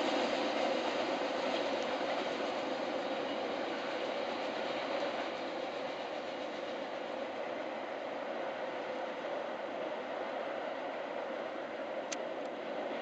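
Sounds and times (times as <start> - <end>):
freight train wagons rolling: 0.0 - 7.2.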